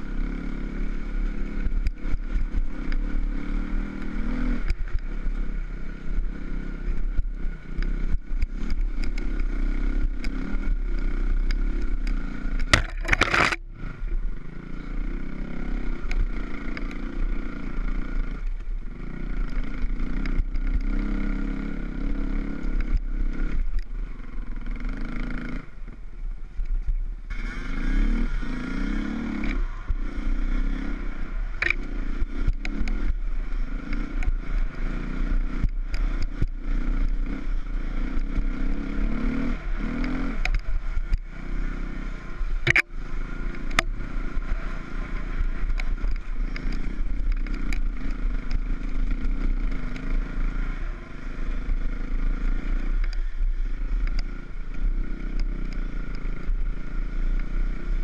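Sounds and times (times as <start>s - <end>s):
motorcycle engine running: 0.0s - 58.0s
motorcycle knocking and clattering: 12.6s - 13.6s, 42.6s - 42.9s.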